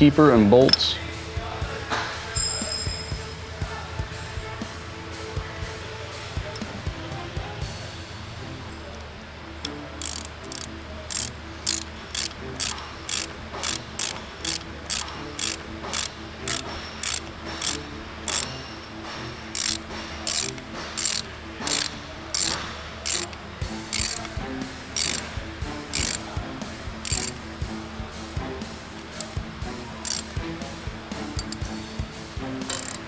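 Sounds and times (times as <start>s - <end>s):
socket ratchet clicking: 8.9s - 18.6s, 19.5s - 24.4s, 25.0s - 26.4s, 27.0s - 27.4s, 28.9s - 29.4s, 30.0s - 30.4s, 31.2s - 31.8s, 32.6s - 33.0s.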